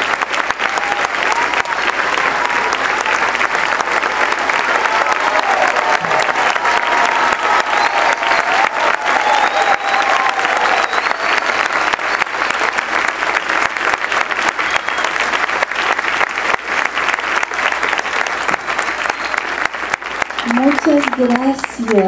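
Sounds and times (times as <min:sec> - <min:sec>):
large audience applauding: 0:00.0 - 0:22.0.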